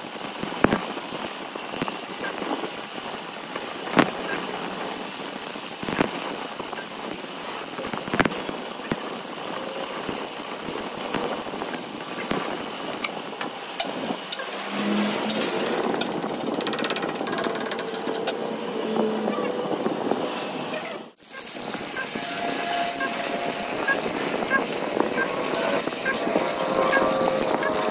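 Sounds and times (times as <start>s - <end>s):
sharp welding pops: 0.0s - 16.6s
welding arc crackling hiss: 0.0s - 18.1s, 21.1s - 27.9s.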